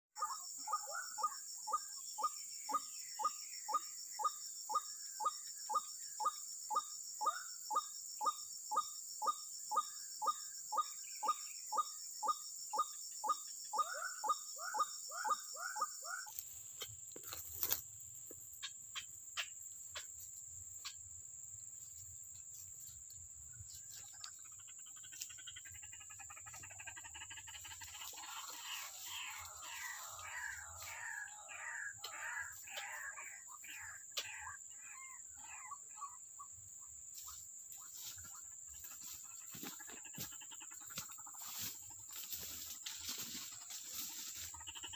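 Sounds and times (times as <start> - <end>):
insect buzz: 0.2 - 44.9
bird calling: 9.2 - 16.6, 23.9 - 36.2.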